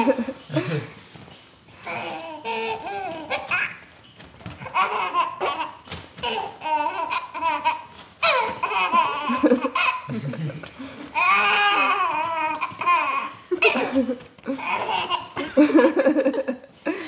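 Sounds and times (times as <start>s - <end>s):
baby giggling: 4.6s - 10.5s, 11.2s - 16.0s.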